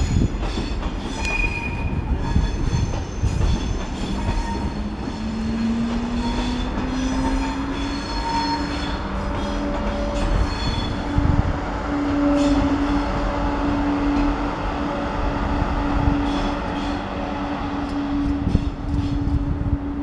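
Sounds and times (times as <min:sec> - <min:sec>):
train wheels rumbling: 0:00.0 - 0:20.0.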